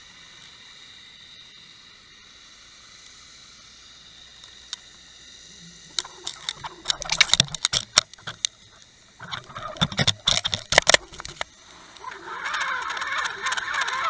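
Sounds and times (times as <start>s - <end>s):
sharp clicks and knocks underwater: 5.9s - 14.0s.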